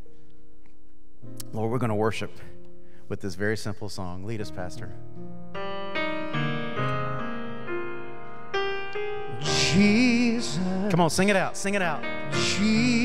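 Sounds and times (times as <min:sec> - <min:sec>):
keyboard playing slow chords: 0:04.2 - 0:13.0.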